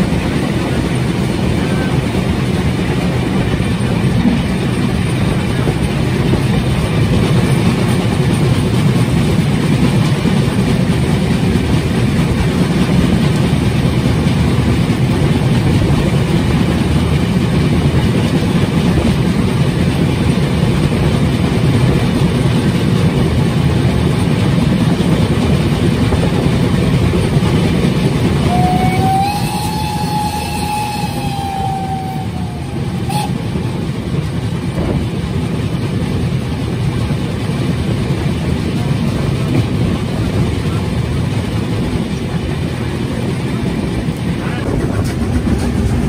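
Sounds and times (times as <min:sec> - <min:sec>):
train rumbling: 0:00.0 - 0:46.0
steam locomotive whistle: 0:28.4 - 0:33.8.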